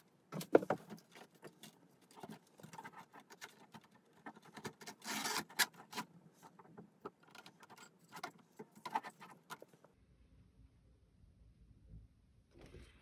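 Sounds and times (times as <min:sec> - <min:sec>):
plastic scrape: 0:00.4 - 0:09.8.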